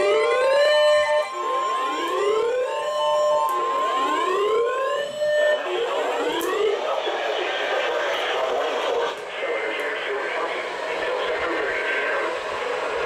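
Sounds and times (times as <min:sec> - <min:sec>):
siren whooping: 0:00.0 - 0:09.2.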